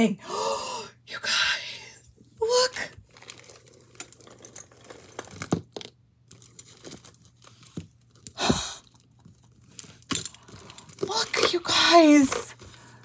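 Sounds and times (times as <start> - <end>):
beaded necklace clicking and rustling: 3.0 - 13.0.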